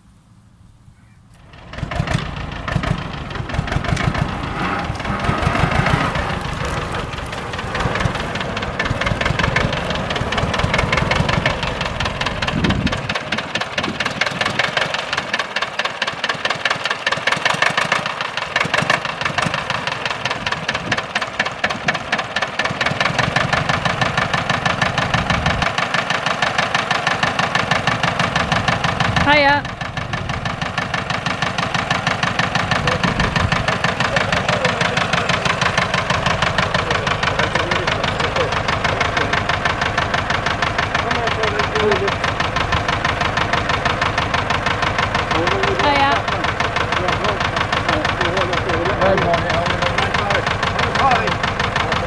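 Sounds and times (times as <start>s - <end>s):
tractor diesel engine running: 0.0s - 52.0s.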